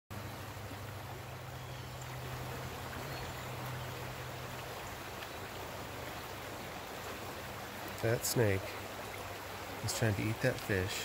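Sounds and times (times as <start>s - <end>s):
stream flowing over rocks: 0.1s - 11.0s.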